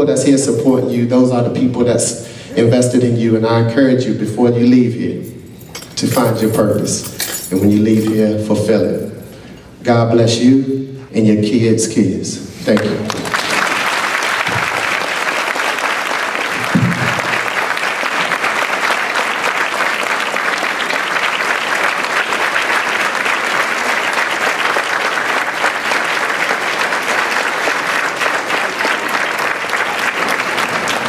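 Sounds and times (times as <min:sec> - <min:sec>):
audience applauding: 0:12.8 - 0:31.0
low thump: 0:16.6 - 0:17.3.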